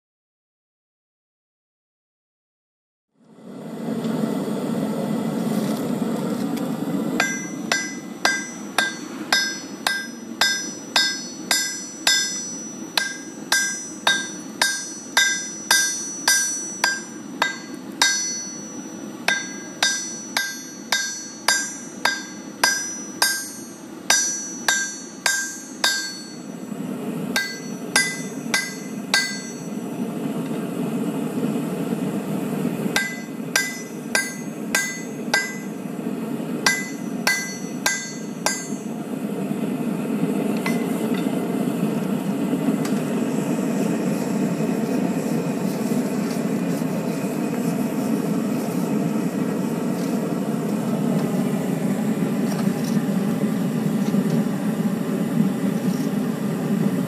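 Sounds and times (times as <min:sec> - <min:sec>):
hammer striking steel on anvil: 0:07.2 - 0:26.7, 0:27.3 - 0:30.0, 0:33.0 - 0:35.9, 0:36.6 - 0:39.0, 0:40.6 - 0:41.3.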